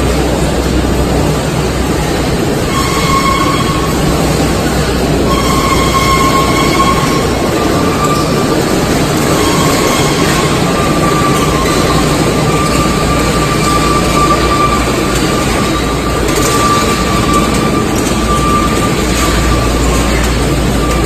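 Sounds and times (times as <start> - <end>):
loud machinery noise: 0.0 - 21.0
thin high whine: 1.5 - 21.0.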